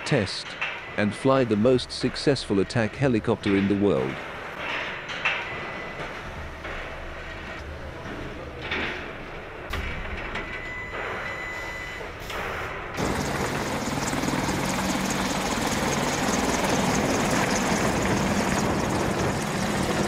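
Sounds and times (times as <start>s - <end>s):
helicopter rotors and engines: 12.4s - 20.0s.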